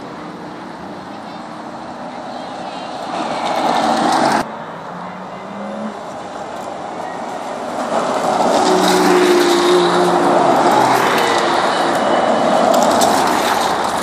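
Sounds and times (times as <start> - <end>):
sports car engines passing: 3.0 - 14.0.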